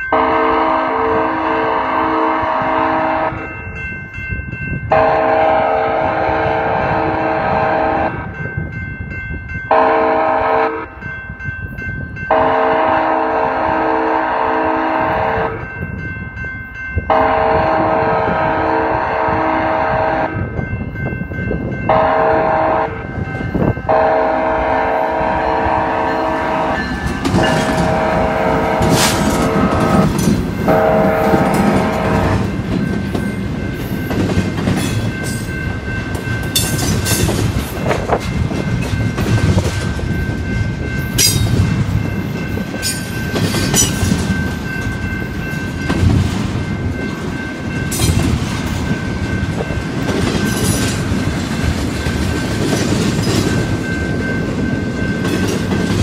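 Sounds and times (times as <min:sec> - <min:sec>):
crossing bell ringing: 0:00.0 - 0:56.0
locomotive air horn blasts: 0:00.1 - 0:03.5, 0:04.9 - 0:08.2, 0:09.7 - 0:10.9, 0:12.3 - 0:15.6, 0:17.1 - 0:20.4, 0:21.9 - 0:23.1, 0:23.8 - 0:32.5
locomotive engine passing: 0:21.9 - 0:56.0
freight cars clicking over rail joints: 0:26.9 - 0:30.8.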